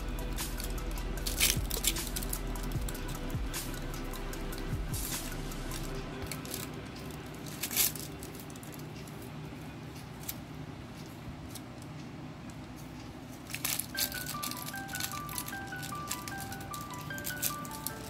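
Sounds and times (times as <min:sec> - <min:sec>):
plastic bag rustling and crinkling: 0:13.4 - 0:18.0.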